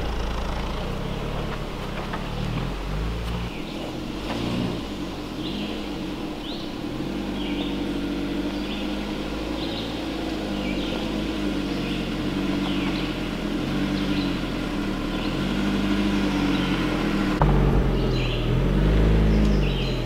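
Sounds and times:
car engine at low revs: 0:00.0 - 0:20.0
high bird chirps: 0:17.8 - 0:18.6.

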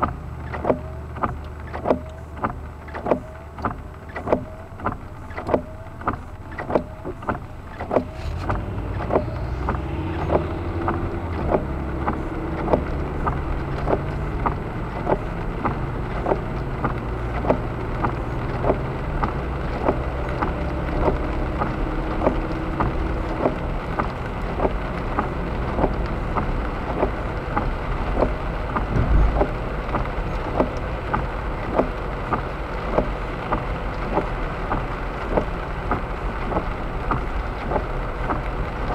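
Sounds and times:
sharp regular clicks: 0:00.0 - 0:34.3
tyre and road noise: 0:00.0 - 0:38.9
low thump: 0:28.9 - 0:30.7.

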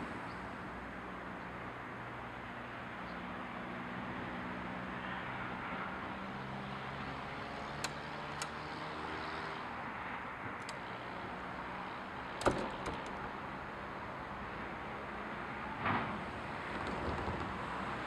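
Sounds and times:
sharp clicks: 0:07.8 - 0:08.6, 0:10.5 - 0:10.8.

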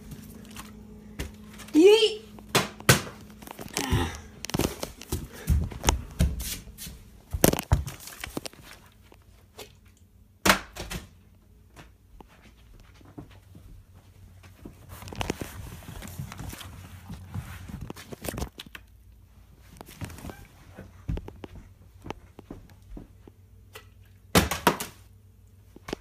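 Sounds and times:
small rustling noises: 0:03.3 - 0:10.0, 0:11.7 - 0:23.4.

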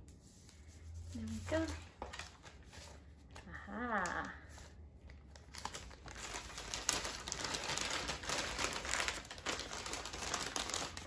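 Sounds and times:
paper bag crinkling and rustling: 0:01.2 - 0:03.1, 0:05.0 - 0:11.0.

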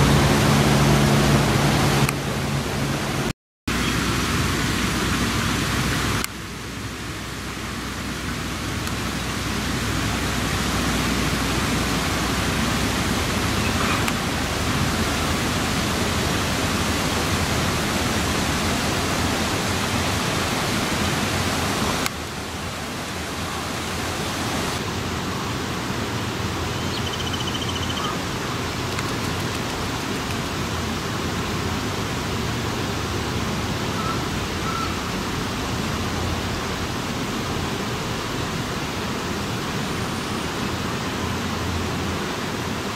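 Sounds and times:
steady rushing noise: 0:00.0 - 0:27.2.

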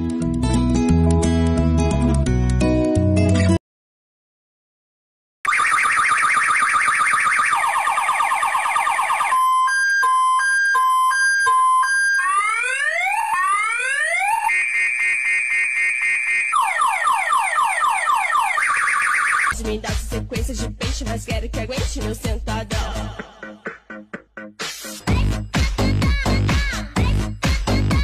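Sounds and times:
car alarm siren: 0:05.5 - 0:19.6.

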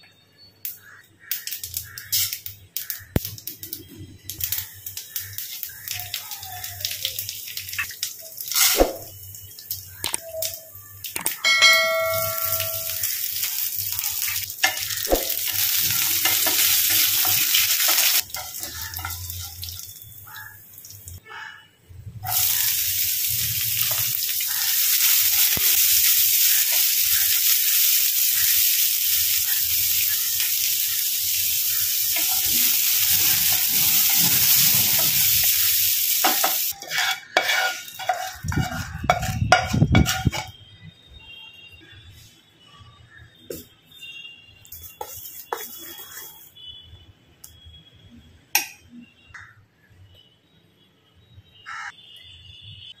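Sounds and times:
oil sizzling in frying pan: 0:00.7 - 0:21.2, 0:22.2 - 0:40.5, 0:44.7 - 0:46.5.

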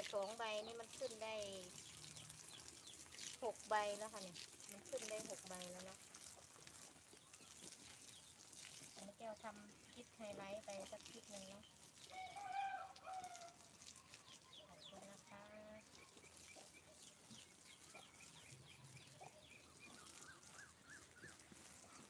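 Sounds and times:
small birds chirping: 0:00.0 - 0:22.0
rooster crowing: 0:12.1 - 0:13.6.

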